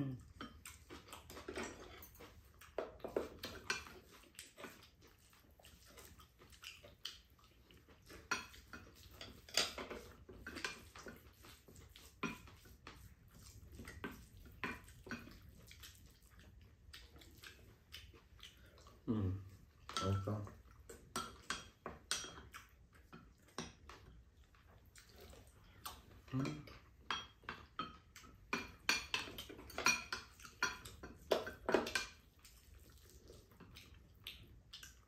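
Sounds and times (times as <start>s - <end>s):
spoons clinking on ceramic bowls: 28.6s - 32.2s.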